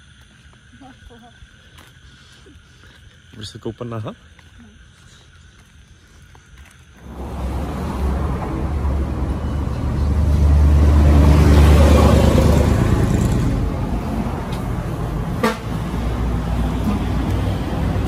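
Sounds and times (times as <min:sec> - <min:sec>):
vehicle engine running: 0:07.0 - 0:18.0.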